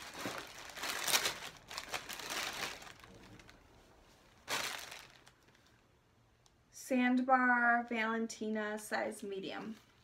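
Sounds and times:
packaging crinkling: 0.0s - 3.7s, 4.3s - 5.8s.

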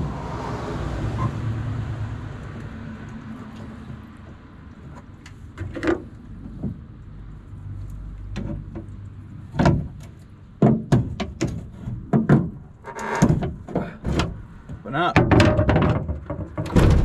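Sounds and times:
tailgate latch clicking and knocking: 15.3s - 17.0s.

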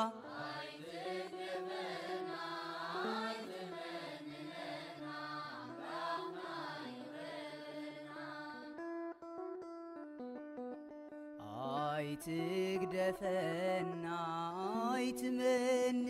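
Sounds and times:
slow chant-like singing: 0.0s - 8.8s.

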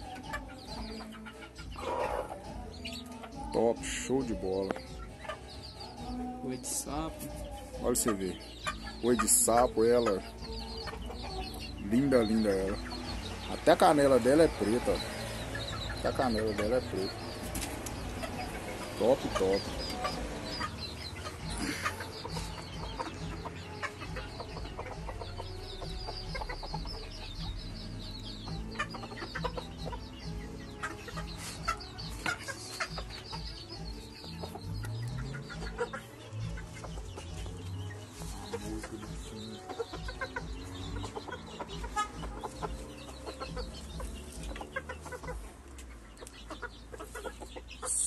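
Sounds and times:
chickens clucking: 0.0s - 48.0s
hen scratching in sandy dirt: 31.1s - 33.2s.

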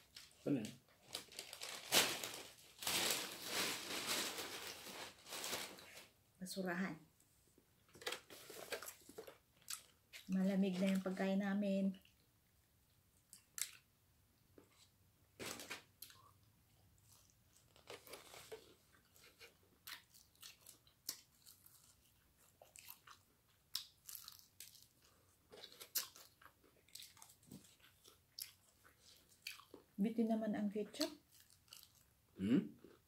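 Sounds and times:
chewing: 8.8s - 11.0s, 17.0s - 29.9s, 31.0s - 32.1s.

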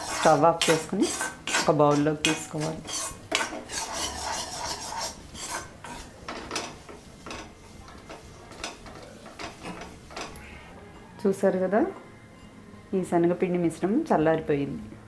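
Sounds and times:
metal spoon scraping metal pan: 0.0s - 10.6s.

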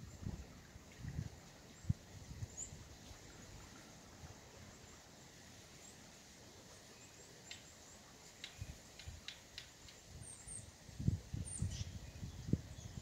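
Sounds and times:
small birds chirping: 6.8s - 13.0s.

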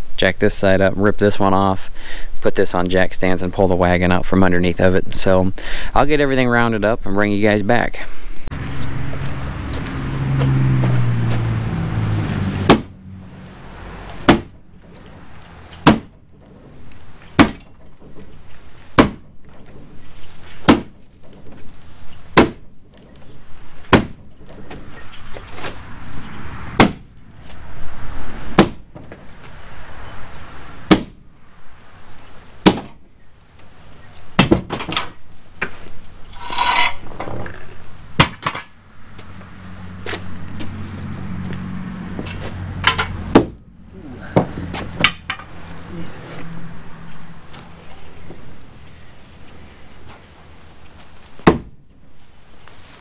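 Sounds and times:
lifting jack metallic clanks: 36.3s - 37.6s, 42.8s - 43.6s.

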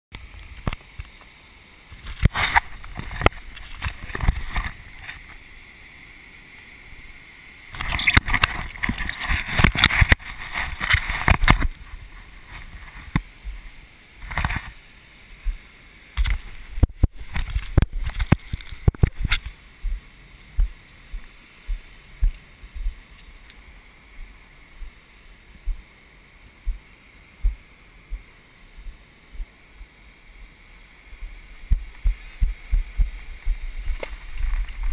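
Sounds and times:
surf washing onto beach: 0.2s - 23.1s.

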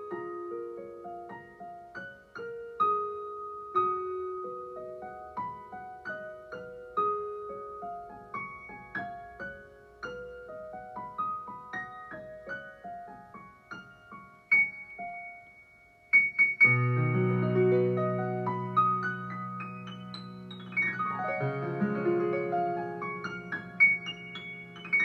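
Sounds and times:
solo piano: 0.0s - 25.0s
loud piano chords with bass notes: 16.2s - 25.0s.

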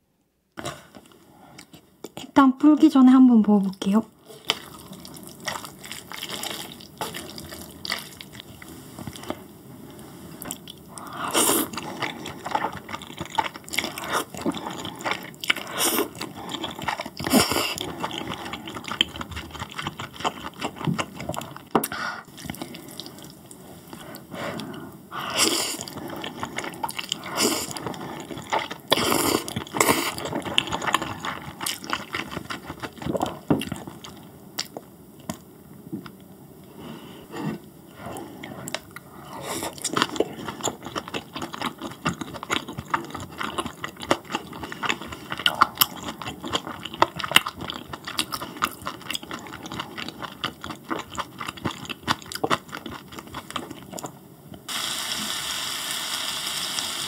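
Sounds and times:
chewing: 4.3s - 9.4s, 10.4s - 35.4s, 38.0s - 54.2s
wet slurping of noodles: 11.0s - 19.0s.

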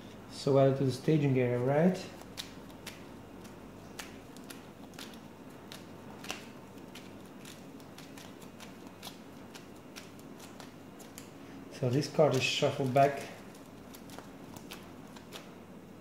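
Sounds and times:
faint steady hum: 0.0s - 16.0s.

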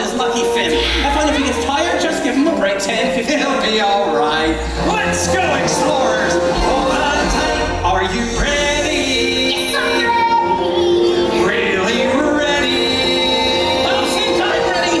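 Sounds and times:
instrumental accompaniment: 0.0s - 15.0s
woman singing: 9.2s - 14.4s.

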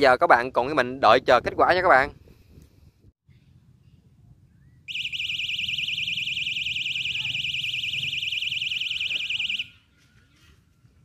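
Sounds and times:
fishing bite alarm warbling tone: 4.9s - 9.7s.

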